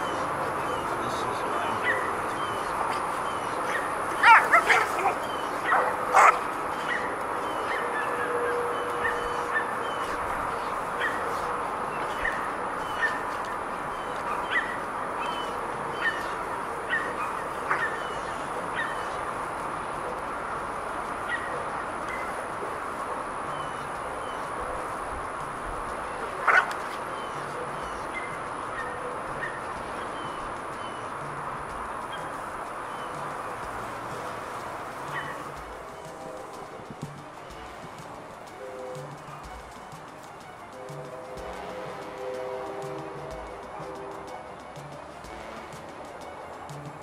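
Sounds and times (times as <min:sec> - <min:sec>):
background hiss: 0:00.0 - 0:47.0
dog yelping: 0:01.8 - 0:02.2, 0:03.6 - 0:10.1, 0:14.3 - 0:19.2, 0:26.4 - 0:26.7, 0:35.1 - 0:35.4.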